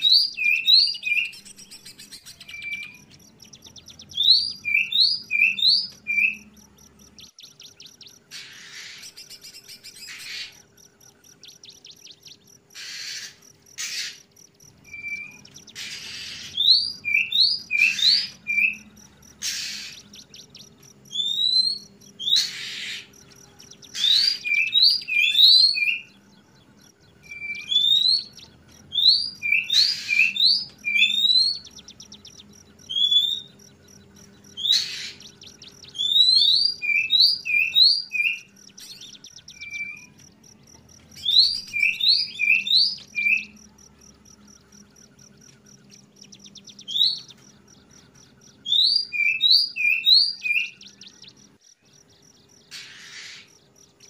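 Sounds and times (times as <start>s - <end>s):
bird whistling song: 0.0s - 51.6s
bird harsh rasping notes: 12.7s - 26.1s, 27.2s - 40.2s.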